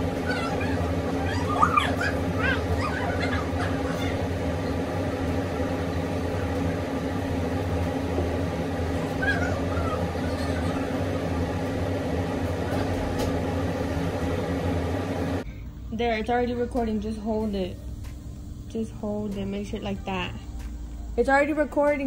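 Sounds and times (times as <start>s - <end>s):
air conditioner humming: 0.0s - 22.0s.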